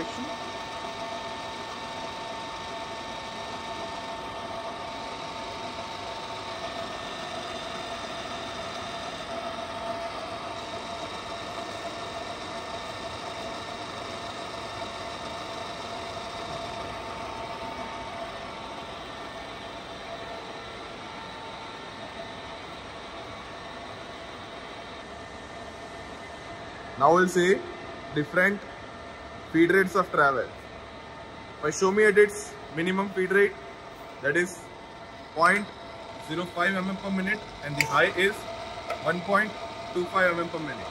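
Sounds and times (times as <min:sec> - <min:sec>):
drill machine hum and gear whine: 0:00.0 - 0:40.9.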